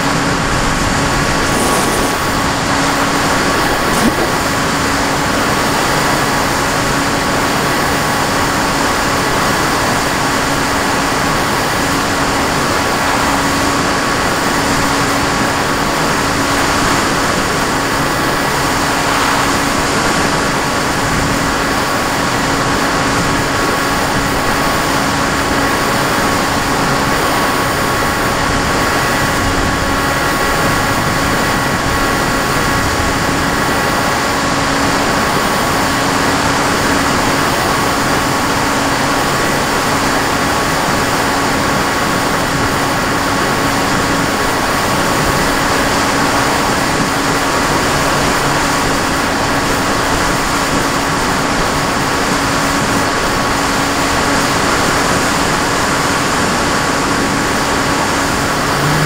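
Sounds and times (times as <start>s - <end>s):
wind rush: 0.0s - 37.4s
model aircraft motor whine: 0.0s - 59.0s
propeller noise: 0.0s - 59.0s.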